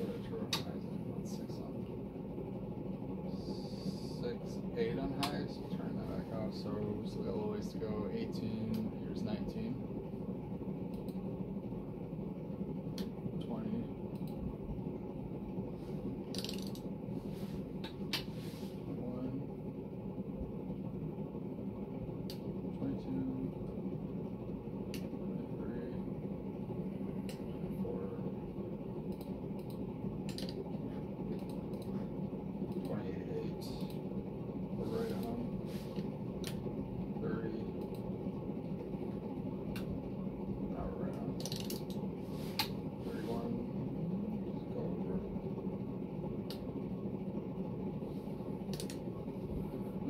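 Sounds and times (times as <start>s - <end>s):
ceiling fan humming: 0.0s - 50.0s
sharp clicks: 14.1s - 14.4s, 31.4s - 31.9s, 41.1s - 42.0s, 48.7s - 49.0s.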